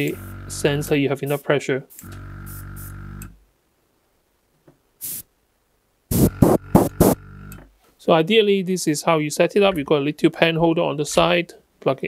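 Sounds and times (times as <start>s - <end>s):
short hiss: 5.0s - 5.3s, 6.1s - 7.2s
airbrush compressor motor humming: 6.1s - 7.2s.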